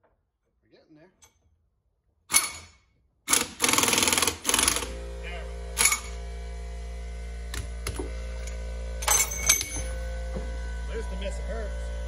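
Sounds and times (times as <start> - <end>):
impact wrench rattling: 2.3 - 5.0, 5.8 - 6.2
steady low hum: 4.3 - 12.0.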